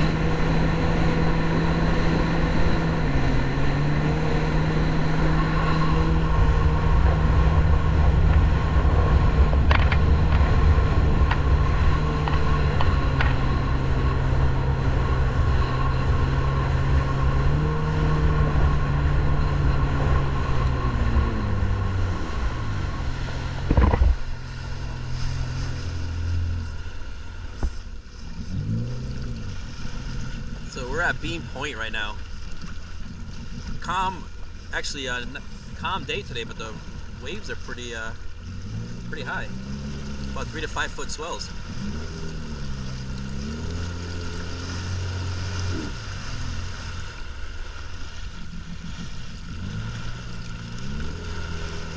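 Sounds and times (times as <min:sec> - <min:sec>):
boat engine running: 0:00.0 - 0:51.9
water rushing along hull: 0:00.0 - 0:51.9
loud thump: 0:23.6 - 0:24.2.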